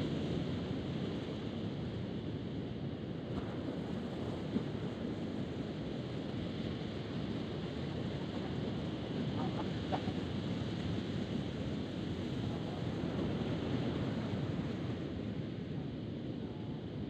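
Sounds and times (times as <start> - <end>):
wind on microphone: 3.2 - 17.0
ocean surf washing ashore: 3.5 - 16.9.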